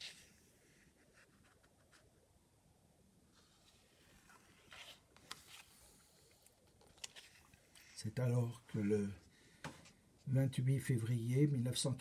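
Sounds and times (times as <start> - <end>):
book page turning: 3.4 - 8.1.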